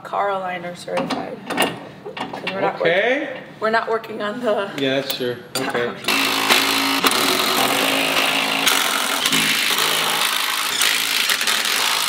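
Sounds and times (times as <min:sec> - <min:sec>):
impact wrench whirring and hammering: 0:06.0 - 0:12.0.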